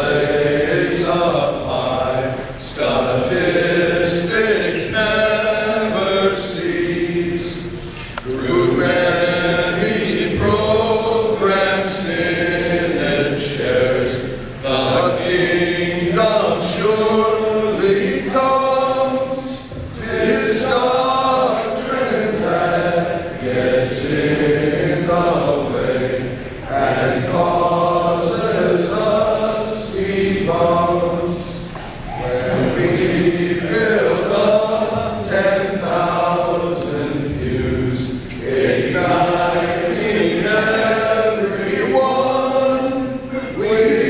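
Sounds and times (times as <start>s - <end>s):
men singing together: 0.0s - 44.0s.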